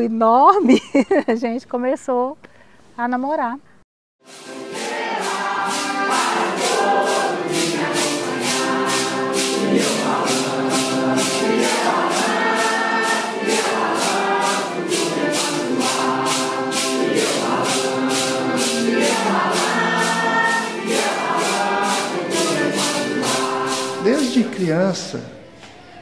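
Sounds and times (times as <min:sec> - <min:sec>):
metal maracas shaken: 0:04.3 - 0:24.8
women singing a hymn: 0:04.5 - 0:24.1.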